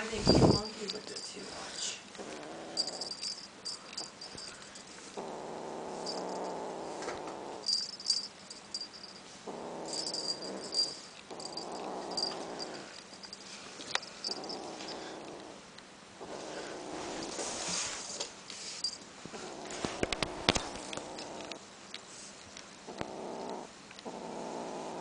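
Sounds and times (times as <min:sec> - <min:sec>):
cat growling low: 0:01.8 - 0:03.3, 0:05.1 - 0:07.8, 0:09.4 - 0:13.0, 0:14.2 - 0:15.6, 0:16.2 - 0:17.6, 0:19.3 - 0:21.6, 0:22.8 - 0:25.0.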